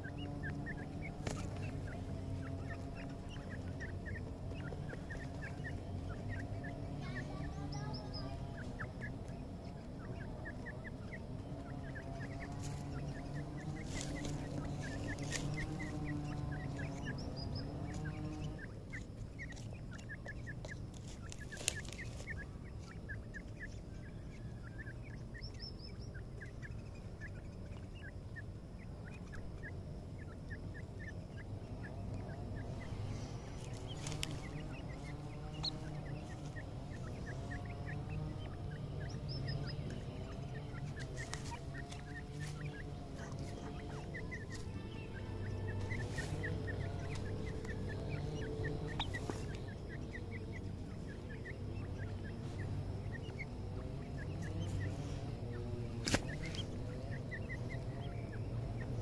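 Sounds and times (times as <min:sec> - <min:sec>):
chicks peeping: 0:00.0 - 0:59.0.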